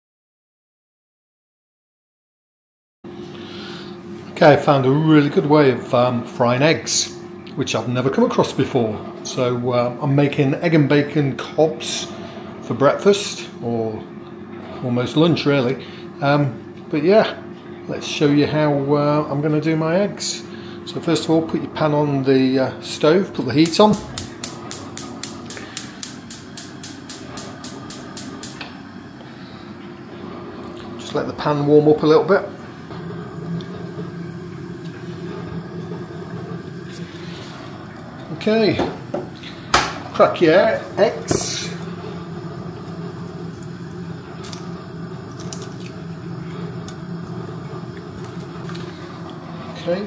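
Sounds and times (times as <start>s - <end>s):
gas hob igniter clicking: 23.5s - 29.2s, 32.9s - 49.5s
low hum: 23.6s - 50.0s.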